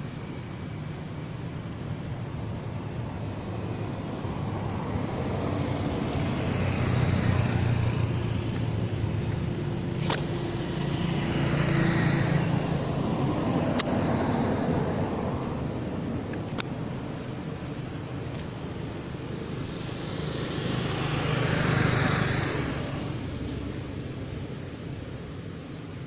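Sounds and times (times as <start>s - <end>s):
motor vehicle passing: 3.6s - 15.7s, 19.4s - 24.4s.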